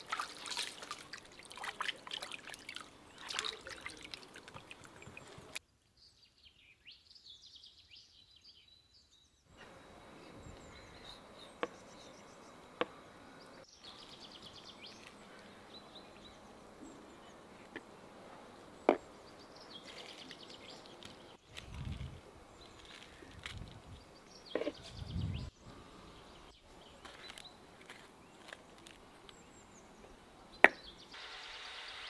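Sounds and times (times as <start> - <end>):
water trickling and dripping: 0.0 - 5.6
birds chirping: 0.0 - 21.6, 22.4 - 32.0.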